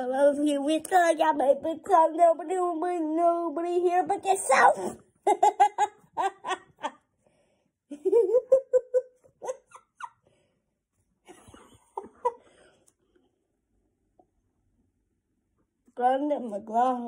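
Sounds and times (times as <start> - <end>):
child laughing: 4.4 - 7.0, 7.9 - 10.2.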